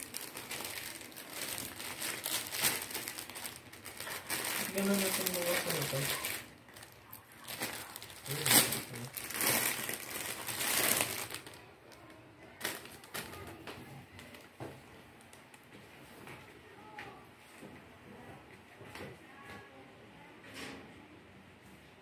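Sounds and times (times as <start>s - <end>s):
plastic packaging crinkling: 0.0s - 14.6s.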